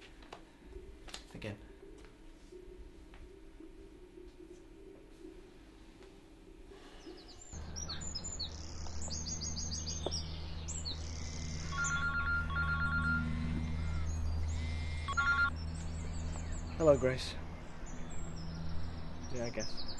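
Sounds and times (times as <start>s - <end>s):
low steady outdoor hum: 0.0s - 19.9s
birds chirping and singing: 6.9s - 19.9s
mobile phone ringtone: 11.6s - 15.6s.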